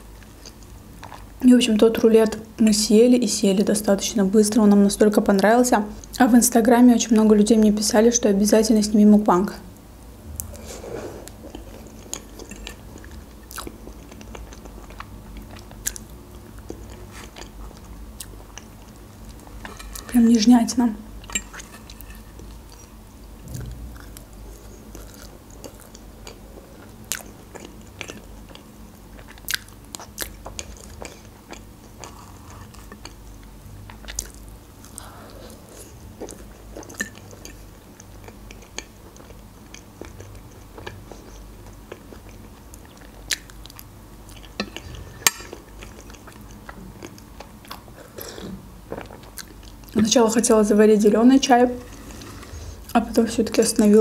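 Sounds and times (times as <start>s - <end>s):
person chewing: 10.3s - 20.1s, 21.2s - 50.0s.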